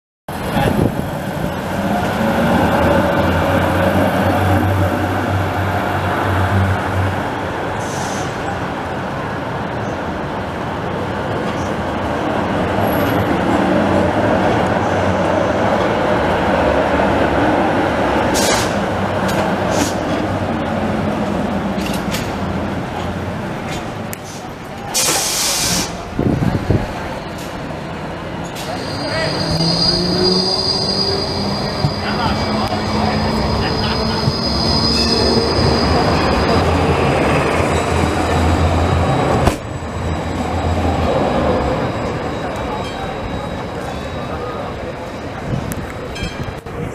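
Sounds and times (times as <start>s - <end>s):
tram wheels on rail: 0.3s - 46.9s
high wheel squeal: 28.4s - 46.6s.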